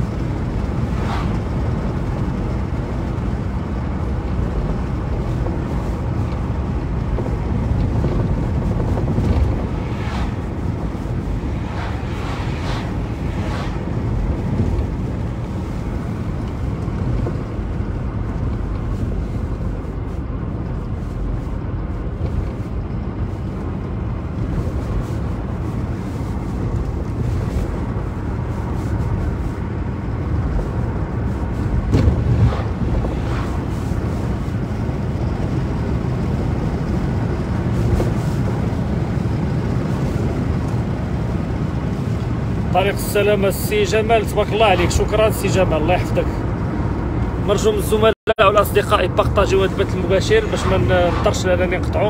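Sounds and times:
car engine: 0:00.0 - 0:52.0
wind noise: 0:00.0 - 0:52.0.

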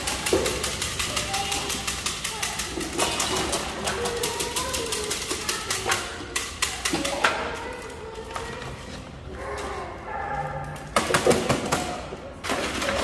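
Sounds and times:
cans and bottles clattering: 0:00.0 - 0:07.6, 0:10.8 - 0:13.0.

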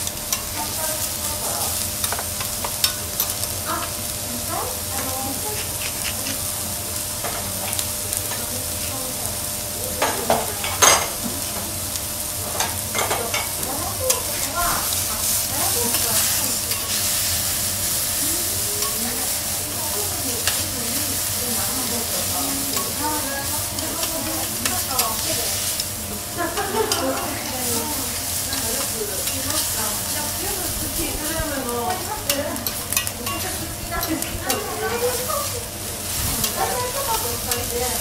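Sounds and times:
food sizzling on a steel griddle: 0:00.0 - 0:38.0
metal spatula clicks and scrapes: 0:05.3 - 0:06.5, 0:18.8 - 0:19.4, 0:31.9 - 0:35.6, 0:36.4 - 0:37.7.

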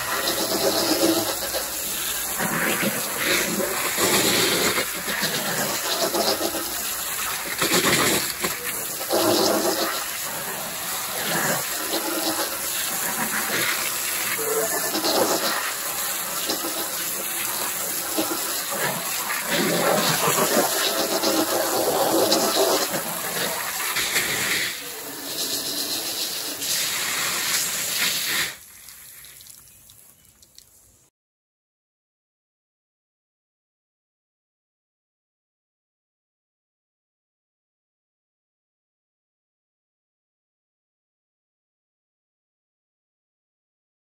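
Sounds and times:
hose water spraying on window: 0:00.0 - 0:30.6.

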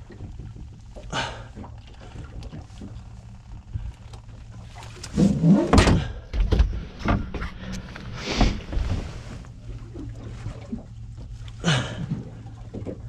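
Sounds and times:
knocks and thumps on boat deck: 0:00.0 - 0:03.9, 0:04.6 - 0:13.0
low steady hum: 0:00.0 - 0:13.0.

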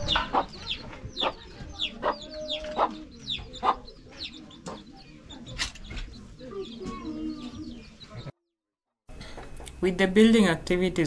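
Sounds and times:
chicks peeping: 0:00.0 - 0:08.3.

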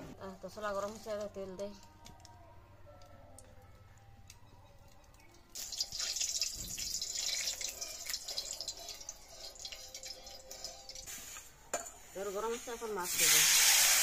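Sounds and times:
oil hissing and crackling in pan: 0:05.5 - 0:14.0.

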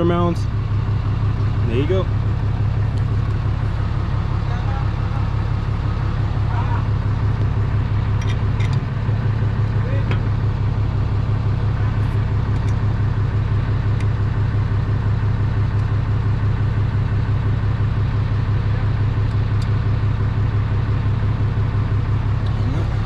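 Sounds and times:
engine humming: 0:00.0 - 0:23.0.

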